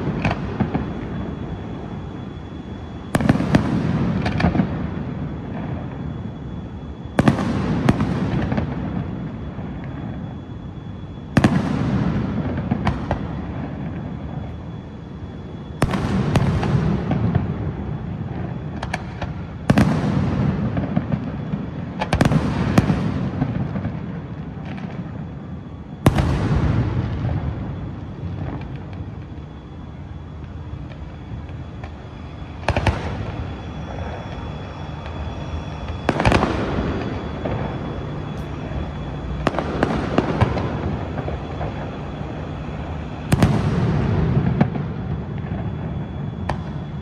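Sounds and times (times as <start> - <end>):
firework booms: 3.1 - 5.9, 7.2 - 10.1, 11.4 - 14.0, 15.8 - 25.0, 26.0 - 28.9, 35.8 - 37.9, 38.6 - 42.0, 43.3 - 47.0.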